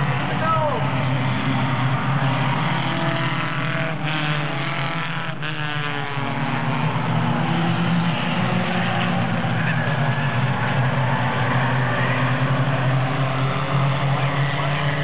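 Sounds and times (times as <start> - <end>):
stock car engines racing: 0.0 - 15.0.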